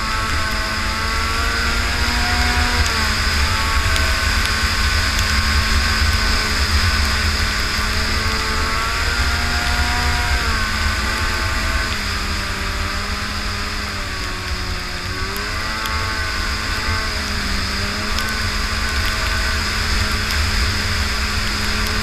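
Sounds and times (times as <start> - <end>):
snowmobile engine revving: 0.0 - 22.0.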